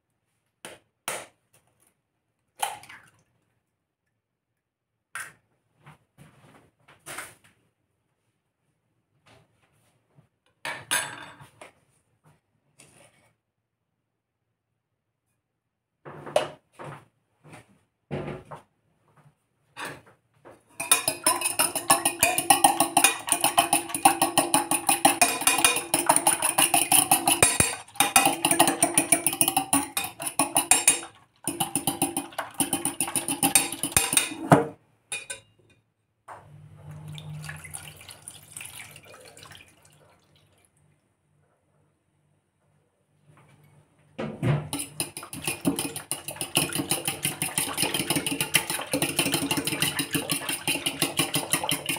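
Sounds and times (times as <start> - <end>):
milk pouring into bowl: 20.8 - 34.3, 37.0 - 40.8, 44.8 - 51.9
fork beating egg in metal bowl: 20.8 - 34.5, 44.7 - 51.9.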